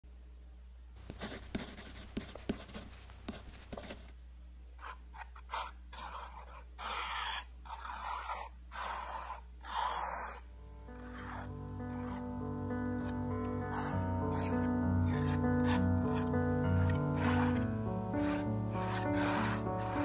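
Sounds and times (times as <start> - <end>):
palette knife scraping canvas: 4.8 - 12.2, 13.0 - 20.0.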